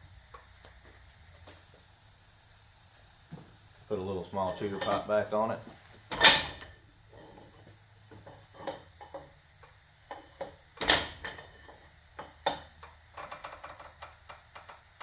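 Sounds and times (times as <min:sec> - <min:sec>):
pipe wrench clanking on metal: 0:04.4 - 0:05.2, 0:06.1 - 0:09.3, 0:10.1 - 0:14.8.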